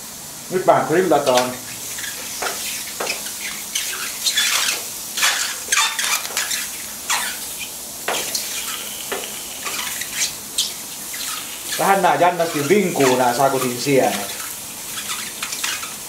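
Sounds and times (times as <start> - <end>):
mushrooms sizzling: 0.0 - 16.0
wooden spatula scraping griddle: 1.0 - 16.0
faint high squeaks: 2.0 - 7.7, 9.6 - 16.0.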